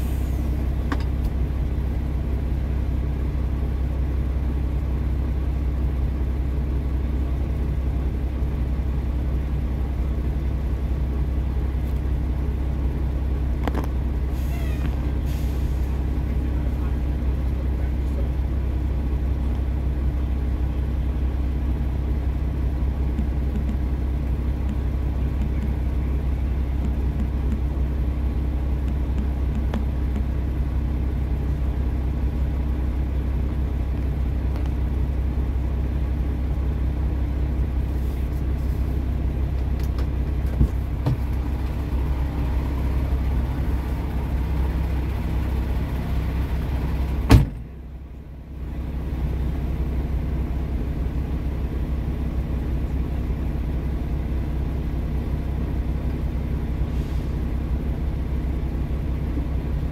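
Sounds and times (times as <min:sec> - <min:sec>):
diesel truck engine idling: 0:00.0 - 0:59.9.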